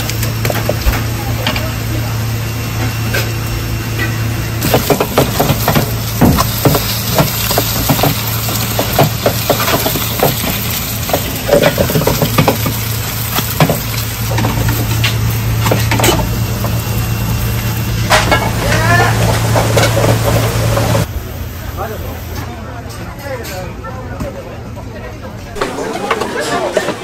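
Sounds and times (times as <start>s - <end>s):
pancakes sizzling in oil: 4.6s - 18.0s.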